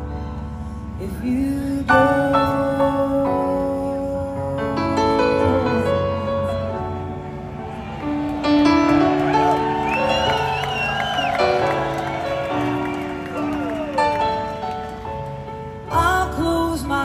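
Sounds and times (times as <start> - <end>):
live band playing a slow ballad: 0.0 - 17.0
held keyboard chords: 1.9 - 17.0
crowd noise: 5.8 - 16.4.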